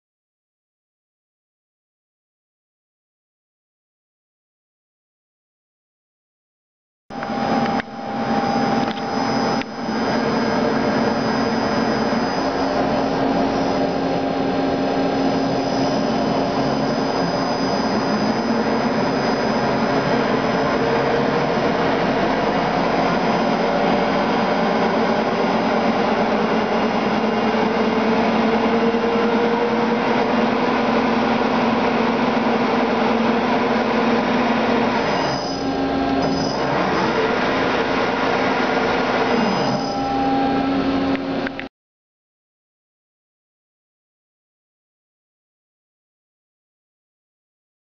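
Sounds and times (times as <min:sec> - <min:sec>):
lathe whirring with low hum: 0:07.1 - 0:41.7.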